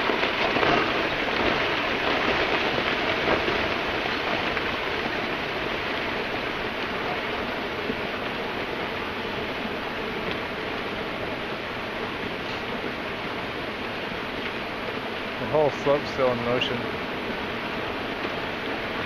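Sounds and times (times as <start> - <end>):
rockfall clattering down slope: 0.0 - 8.4.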